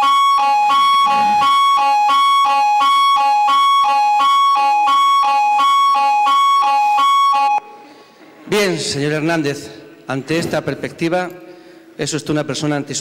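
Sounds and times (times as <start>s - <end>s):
electronic two-tone alarm: 0.0s - 7.6s.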